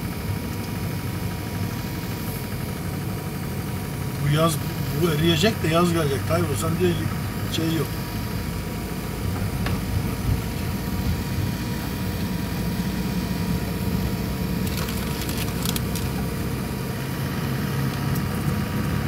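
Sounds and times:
car engine and road noise: 0.0s - 19.0s
sharp clicks or rattles: 14.6s - 16.2s.

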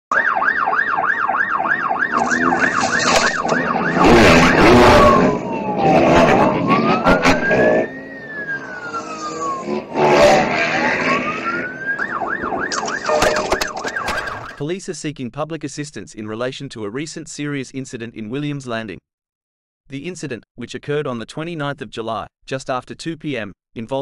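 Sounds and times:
police siren yelp and wail: 0.1s - 14.6s
loud rushing noise: 2.1s - 8.0s.

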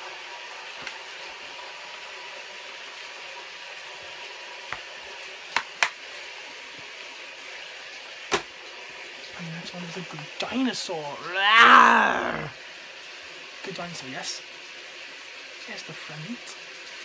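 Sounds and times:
rain hissing: 9.4s - 12.8s.

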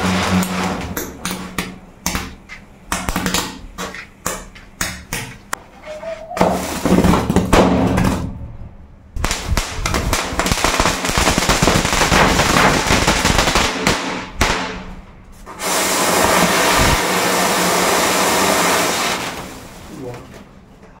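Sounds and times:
fireworks fizzing and crackling: 0.0s - 1.5s, 9.2s - 20.1s
spark fountain hissing: 15.5s - 20.0s.

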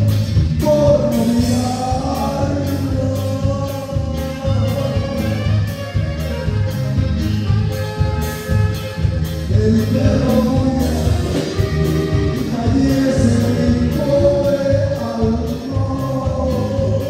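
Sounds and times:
accordion: 0.0s - 17.0s
electric bass: 0.0s - 17.0s
steady drum beat: 0.0s - 17.0s
saxophone: 1.1s - 17.0s.

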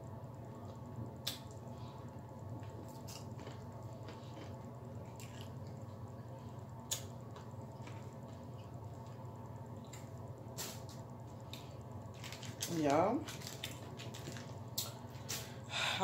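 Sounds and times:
steady low hum: 0.0s - 16.0s
chewing with wet clicks and smacks: 2.6s - 5.8s.

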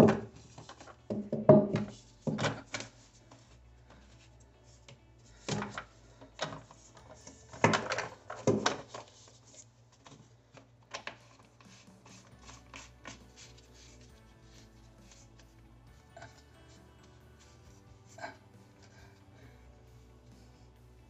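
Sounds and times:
plastic pipe knocks and clicks: 1.1s - 2.6s.

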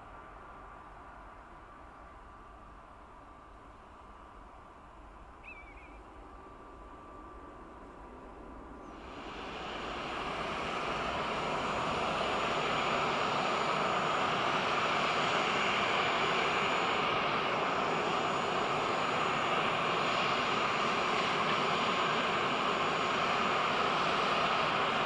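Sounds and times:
jet engines roaring at takeoff: 6.0s - 25.0s.

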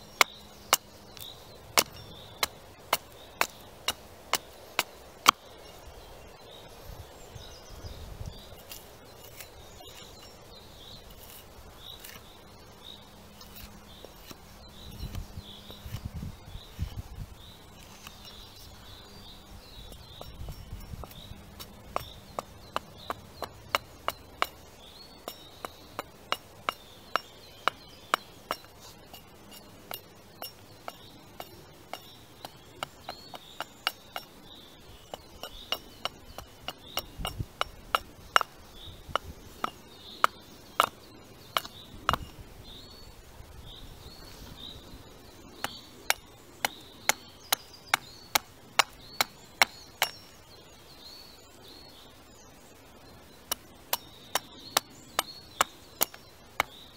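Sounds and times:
axe chopping wood: 0.2s - 5.4s, 35.1s - 42.3s.

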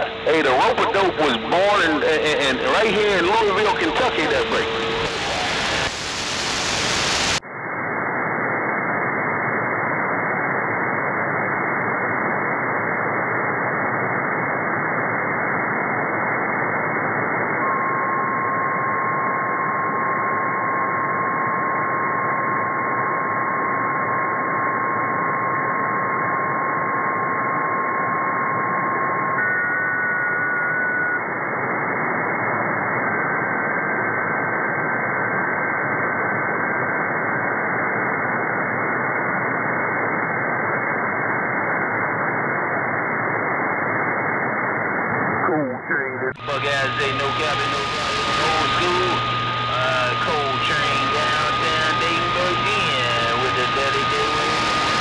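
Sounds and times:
steady radio whistle: 0.0s - 10.2s, 16.5s - 55.0s
radio static hiss: 0.0s - 13.0s, 30.6s - 55.0s.

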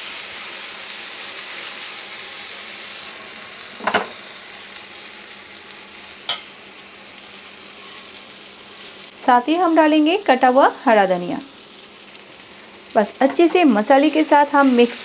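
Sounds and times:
masala sizzling in a pan: 0.0s - 15.0s.

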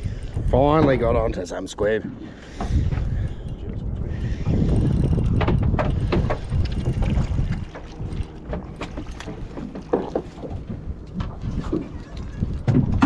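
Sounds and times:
water against boat hull: 0.0s - 13.0s
wind buffeting microphone: 0.0s - 13.0s
low rumble: 2.8s - 13.0s
sharp clicks and knocks: 4.9s - 11.9s.

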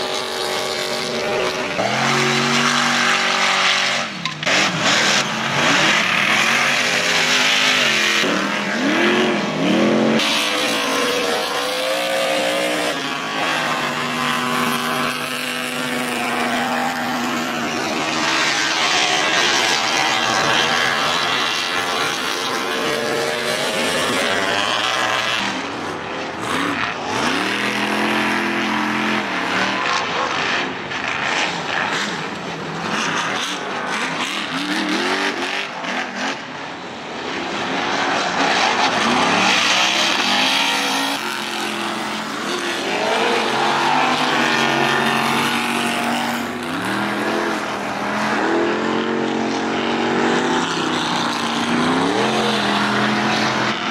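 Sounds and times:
race car engines revving: 0.0s - 53.9s
tyres on dirt: 0.0s - 53.9s.

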